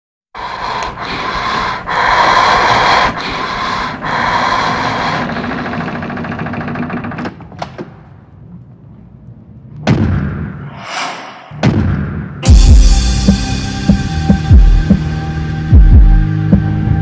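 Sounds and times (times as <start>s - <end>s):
sharp hits: 9.9s - 13.9s
whoosh: 10.4s - 12.6s
dense noisy texture: 10.5s - 12.5s
deep booming impacts: 11.4s - 13.4s.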